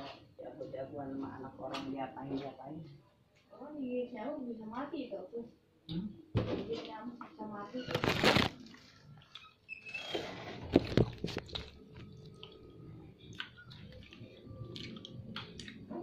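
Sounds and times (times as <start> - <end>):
chewing: 8.6 - 9.7, 10.8 - 16.0.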